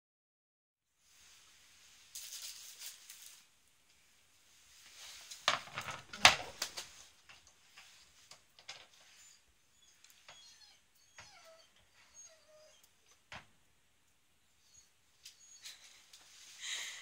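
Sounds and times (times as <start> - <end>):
rustling: 1.0 - 12.4, 15.2 - 17.0.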